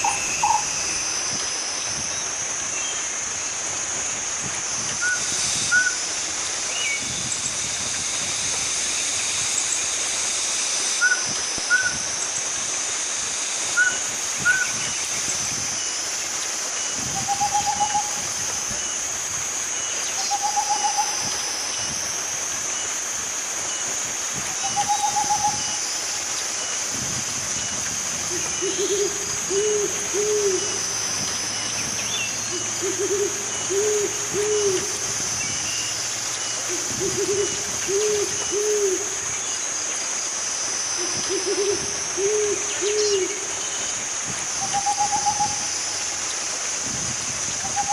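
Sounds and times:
steady high-pitched hiss: 0:00.0 - 0:47.9
owl hooting: 0:11.0 - 0:12.0, 0:13.8 - 0:14.7, 0:17.2 - 0:18.2, 0:20.2 - 0:21.4, 0:24.5 - 0:25.9, 0:28.3 - 0:39.2, 0:41.0 - 0:43.7, 0:44.6 - 0:46.0, 0:47.6 - 0:47.9.

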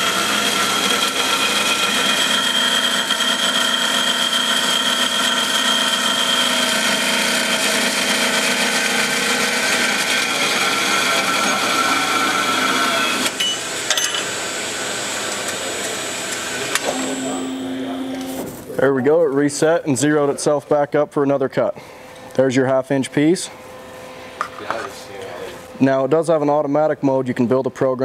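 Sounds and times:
band saw cutting metal tubing: 0:00.0 - 0:18.5.

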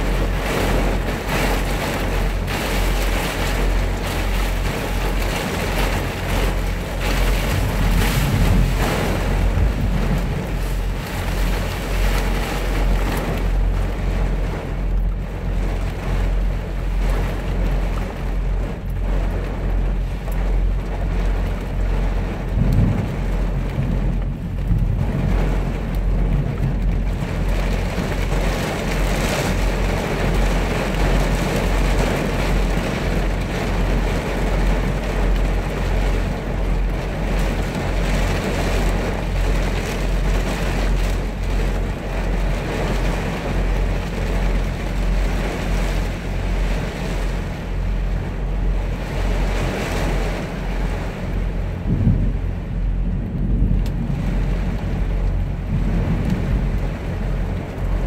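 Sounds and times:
steady low drone: 0:00.0 - 0:34.2, 0:35.2 - 0:58.0
heavy rain drumming on truck cab: 0:00.0 - 0:58.0
low rumble: 0:00.0 - 0:58.0.

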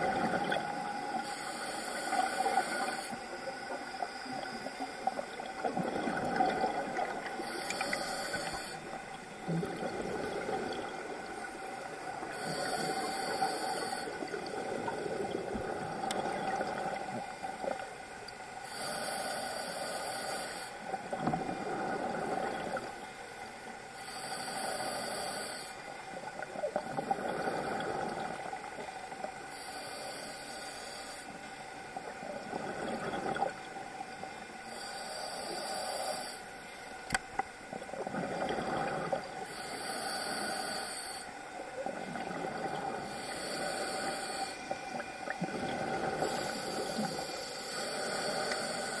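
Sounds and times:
exhaled bubbles gurgling: 0:00.0 - 0:18.0, 0:20.9 - 0:23.0, 0:26.1 - 0:28.9, 0:31.9 - 0:34.2, 0:37.6 - 0:49.0
regulator inhale hiss: 0:00.6 - 0:05.4, 0:06.4 - 0:17.8, 0:18.6 - 0:21.0, 0:22.1 - 0:26.3, 0:26.9 - 0:32.3, 0:34.1 - 0:37.2, 0:39.1 - 0:42.3, 0:42.9 - 0:49.0.

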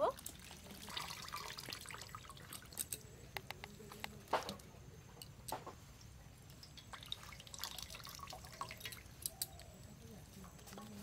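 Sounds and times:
water dripping into a steel bowl: 0:00.0 - 0:03.8, 0:06.4 - 0:09.9
small splashes and clicks: 0:00.0 - 0:04.6, 0:06.5 - 0:09.7.

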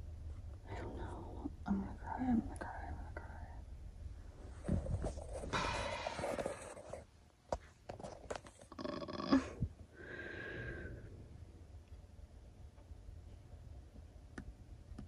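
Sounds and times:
soft breathy sighs: 0:05.4 - 0:06.8, 0:09.3 - 0:11.3.

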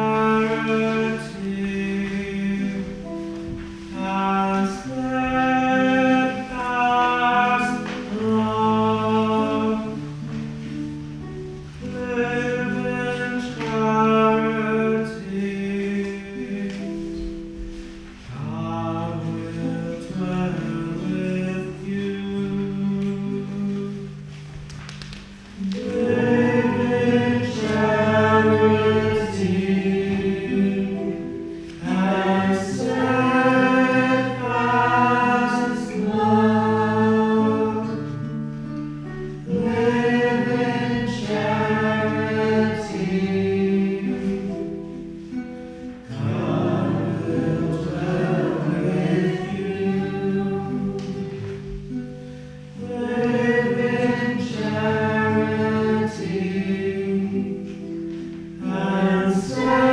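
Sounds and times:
congregation singing a chant: 0:00.0 - 0:10.7, 0:11.8 - 0:24.1, 0:25.6 - 0:38.3, 0:39.4 - 0:45.4, 0:46.0 - 0:59.9
acoustic guitar: 0:00.0 - 0:59.9.

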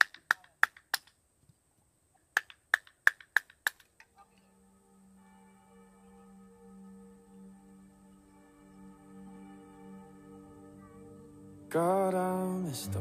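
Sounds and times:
soft music with ringing tones: 0:04.1 - 0:13.0.

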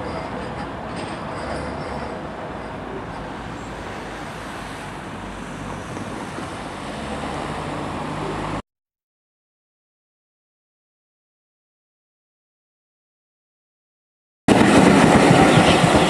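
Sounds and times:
high wheel squeal: 0:00.0 - 0:08.6, 0:15.2 - 0:16.0
street traffic noise: 0:00.0 - 0:08.6, 0:14.5 - 0:16.0
tram pulling away: 0:00.0 - 0:08.6, 0:14.5 - 0:16.0
car approaching: 0:02.1 - 0:08.6.

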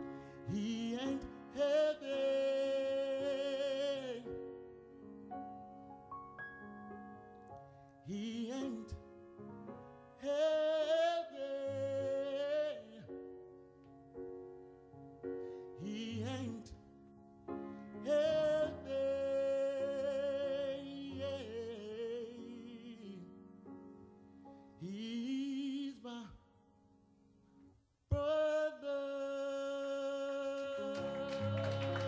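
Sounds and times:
man singing soulfully: 0:00.0 - 0:04.7, 0:08.0 - 0:09.2, 0:10.1 - 0:13.4, 0:15.5 - 0:17.0, 0:17.6 - 0:23.5, 0:24.8 - 0:26.6, 0:28.1 - 0:32.0
soft piano chords: 0:00.0 - 0:32.0.

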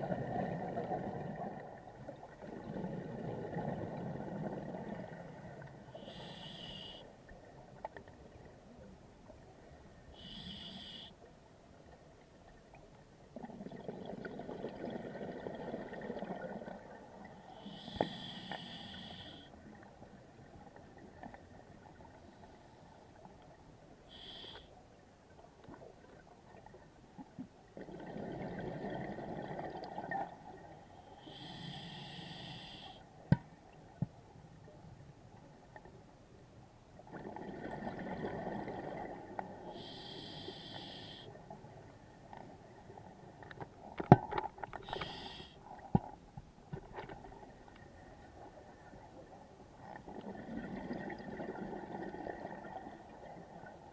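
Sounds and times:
hissing regulator inhalations: 0:17.6 - 0:19.5, 0:31.2 - 0:33.0, 0:39.8 - 0:41.3, 0:44.8 - 0:45.6.

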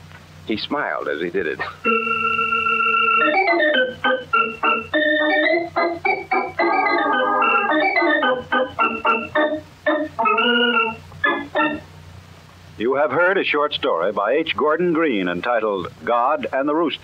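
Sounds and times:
organ playing chords: 0:01.1 - 0:11.9.

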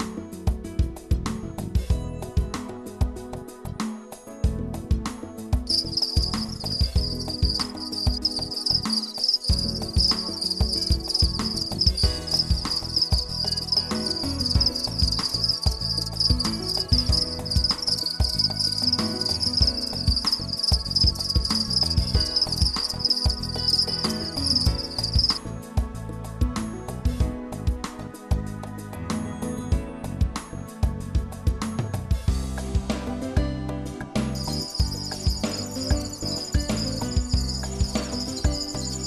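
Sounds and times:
low background music: 0:00.0 - 0:39.0
crickets chirping: 0:05.7 - 0:25.4, 0:34.4 - 0:39.0.

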